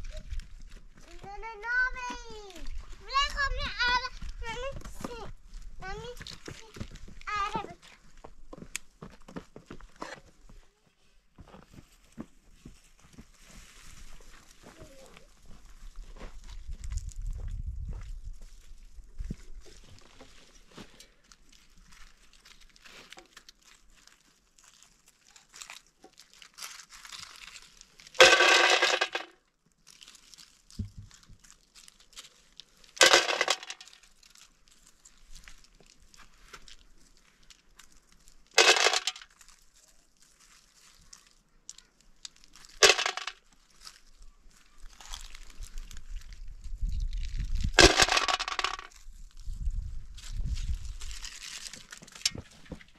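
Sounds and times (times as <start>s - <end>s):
hands rustling leaves and stones: 12.8s - 17.2s, 18.4s - 28.2s, 29.8s - 52.9s
hard pieces clanking in metal pot: 28.2s - 29.2s.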